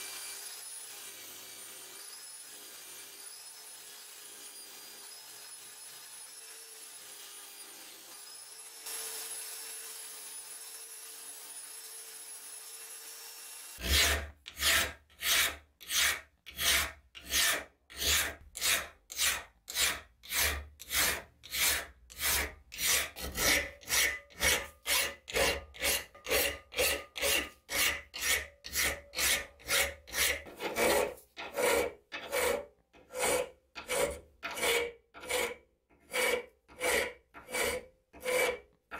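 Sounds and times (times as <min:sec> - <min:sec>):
hand file rasping on steel: 0:13.8 - 0:38.8.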